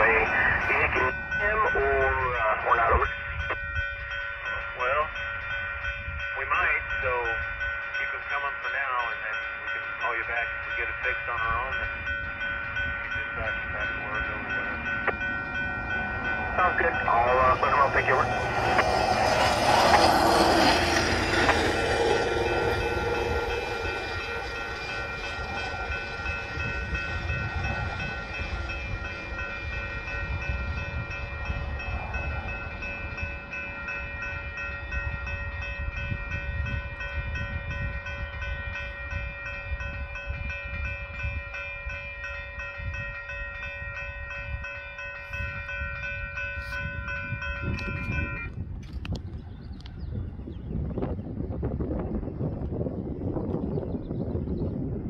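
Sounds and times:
electronic crossing bell ringing: 0.0s - 48.6s
pickup truck passing over tracks: 12.0s - 34.7s.

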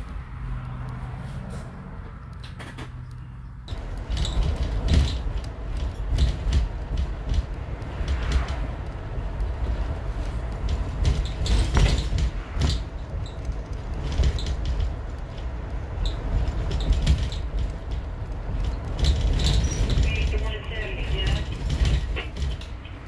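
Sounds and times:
bus road and engine rumble: 0.0s - 23.0s
rattles and knocks in cabin: 3.7s - 23.0s.

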